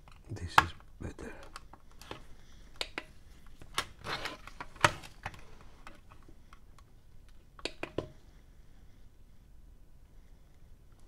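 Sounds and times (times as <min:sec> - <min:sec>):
test probe clicks and taps: 0:07.6 - 0:08.1.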